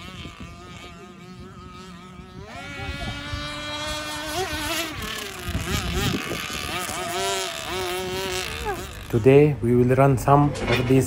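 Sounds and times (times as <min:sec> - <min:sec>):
rc speedboat motor whining: 0:00.0 - 0:09.7.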